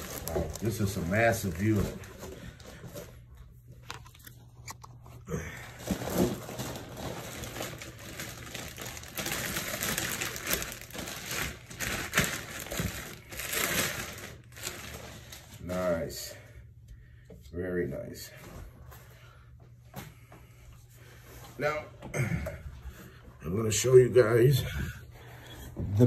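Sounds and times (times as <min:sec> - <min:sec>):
plastic bag crinkling and rustling: 0:00.0 - 0:15.9.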